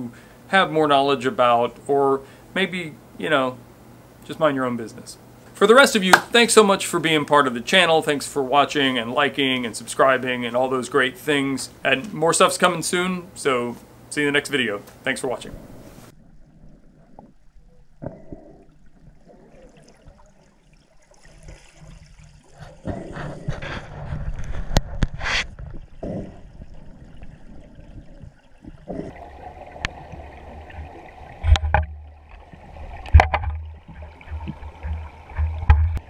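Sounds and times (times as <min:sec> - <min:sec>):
water gurgling and sloshing: 0:15.4 - 0:36.0.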